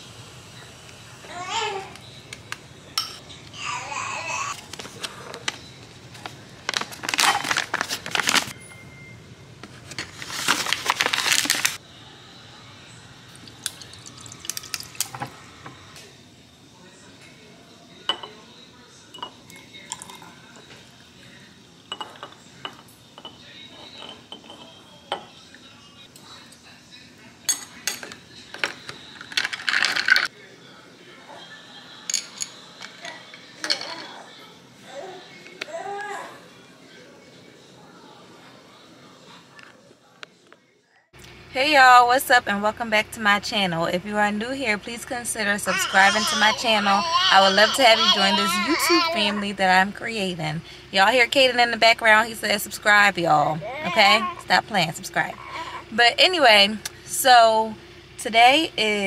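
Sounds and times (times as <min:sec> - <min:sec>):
rattling crinkling burst: 0:06.2 - 0:08.5, 0:09.9 - 0:11.8
ice going into a glass jar: 0:13.4 - 0:15.3
spoon clinking glass jar: 0:13.4 - 0:15.3, 0:21.9 - 0:25.3.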